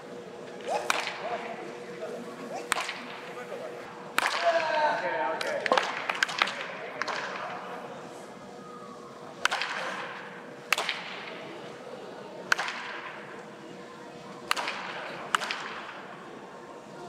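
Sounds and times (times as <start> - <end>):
baseball bat hitting balls: 0.6 - 1.6, 2.5 - 3.3, 4.1 - 7.7, 9.4 - 11.4, 12.5 - 13.2, 14.5 - 16.0.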